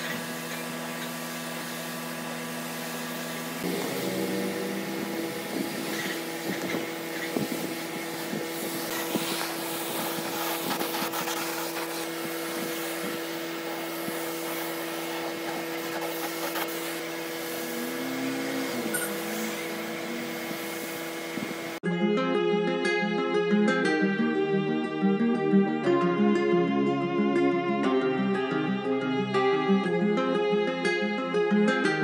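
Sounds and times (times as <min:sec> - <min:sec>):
spray gun hissing: 0:02.6 - 0:21.8
steady low hum: 0:03.5 - 0:09.2, 0:15.0 - 0:21.8.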